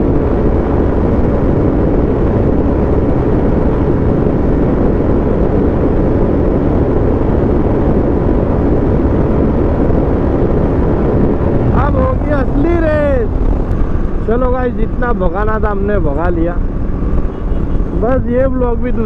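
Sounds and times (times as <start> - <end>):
wind noise on microphone: 0.0 - 19.0.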